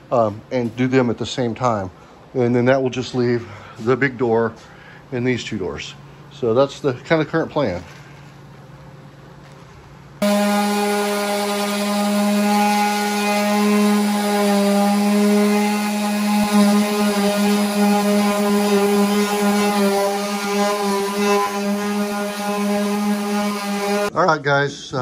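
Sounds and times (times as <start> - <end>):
orbital sander humming: 10.2 - 24.1.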